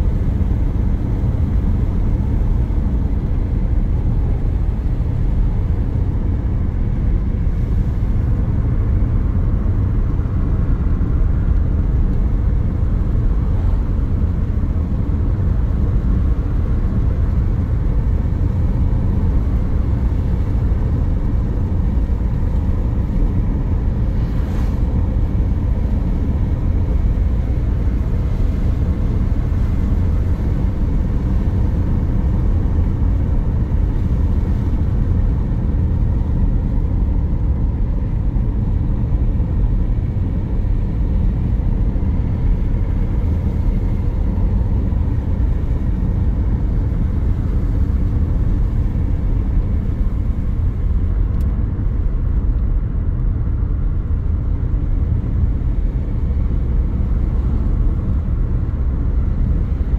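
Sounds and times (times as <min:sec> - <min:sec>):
car driving steadily: 0:00.0 - 0:59.9.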